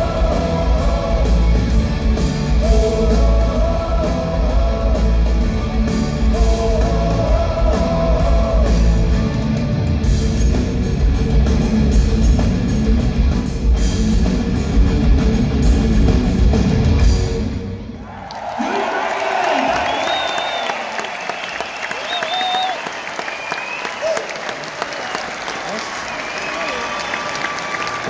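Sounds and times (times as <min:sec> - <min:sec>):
live rock band playing: 0:00.0 - 0:17.8.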